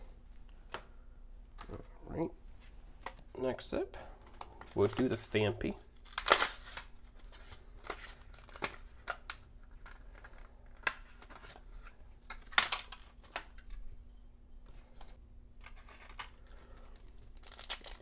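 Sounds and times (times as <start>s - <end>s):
packaging torn and crinkled: 6.0s - 11.4s, 15.7s - 18.0s.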